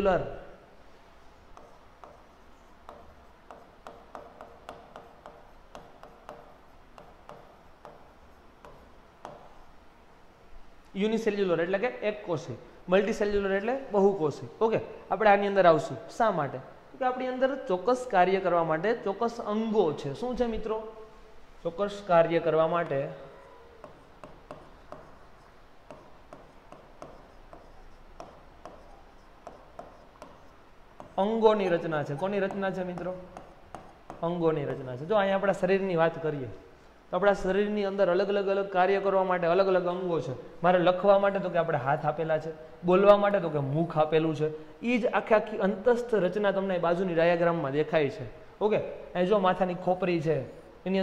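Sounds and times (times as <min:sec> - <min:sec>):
pen tapping on touchscreen: 0:01.5 - 0:09.7, 0:23.8 - 0:31.8, 0:32.4 - 0:34.8.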